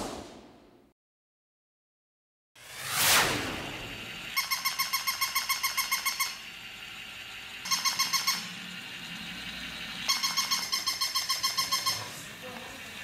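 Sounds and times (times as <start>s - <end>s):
toy puppy electronic yapping: 4.4s - 6.5s, 7.6s - 8.6s, 10.0s - 12.2s.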